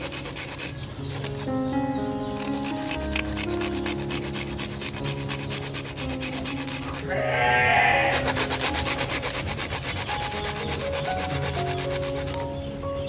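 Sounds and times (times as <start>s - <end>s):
grating on metal grater: 0.0s - 12.8s
animal bleating: 7.0s - 8.6s.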